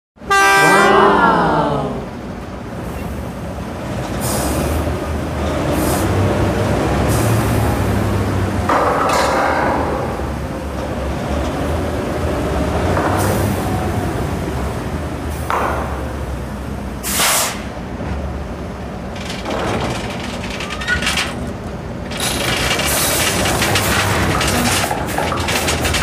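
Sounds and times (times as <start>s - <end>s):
short hissing bursts: 17.1s - 17.7s
toy rolling on tabletop: 19.2s - 26.0s.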